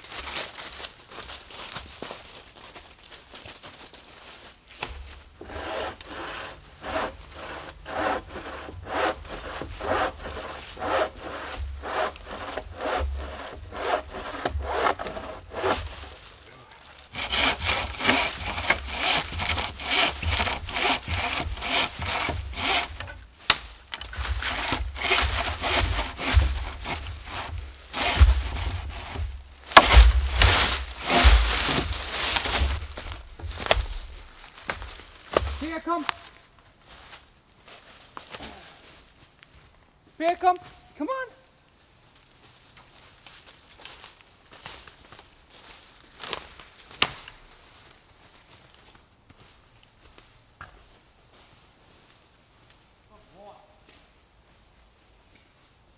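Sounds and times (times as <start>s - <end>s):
bow saw cutting wood: 4.9s - 16.1s, 17.1s - 34.0s.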